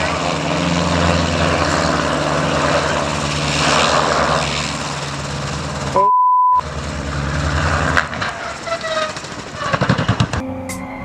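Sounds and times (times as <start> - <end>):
helicopter engine and rotor: 0.0 - 6.0, 8.2 - 10.4
censor beep: 6.0 - 6.6.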